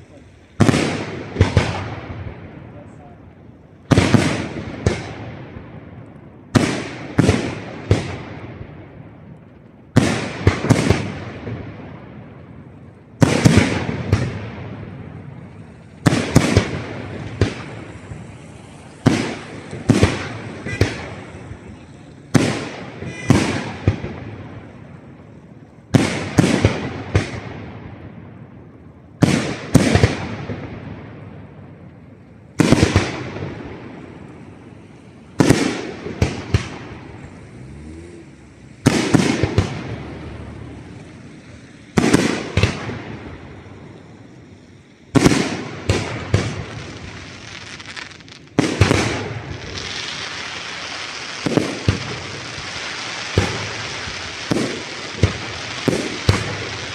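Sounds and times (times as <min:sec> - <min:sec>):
firework shells bursting: 0:12.7 - 0:25.0.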